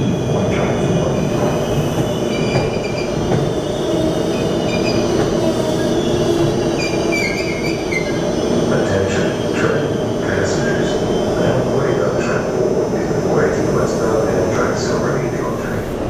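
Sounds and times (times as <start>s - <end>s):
train wheels rumbling on rail: 0.0s - 16.0s
wheel squeals: 2.3s - 3.6s, 4.3s - 8.3s.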